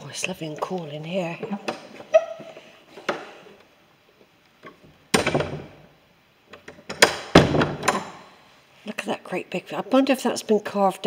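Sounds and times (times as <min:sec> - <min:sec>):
sharp knocks on wooden pews: 0:06.9 - 0:08.2.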